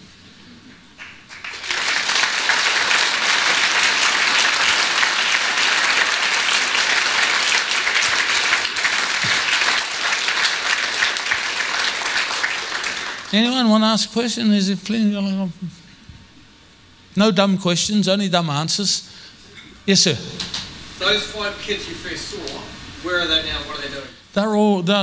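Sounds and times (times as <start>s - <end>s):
large audience applauding: 1.0s - 13.4s.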